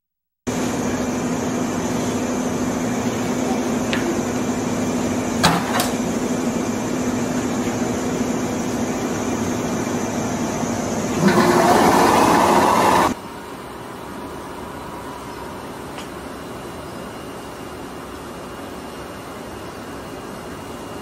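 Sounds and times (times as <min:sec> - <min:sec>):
electric train humming: 0:06.2 - 0:18.2.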